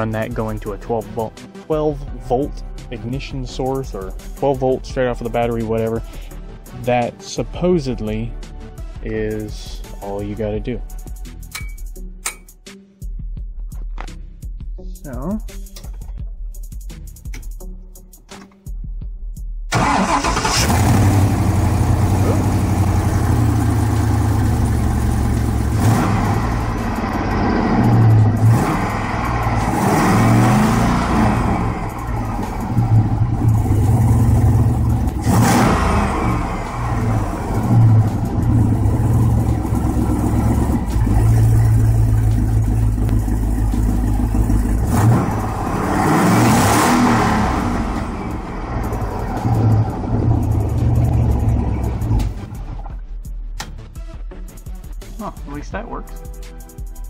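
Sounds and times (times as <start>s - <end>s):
car engine revving: 19.7s - 53.0s.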